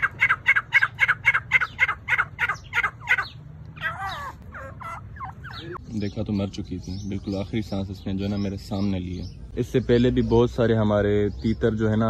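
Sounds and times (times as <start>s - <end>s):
wavering bird call: 0.0s - 5.8s.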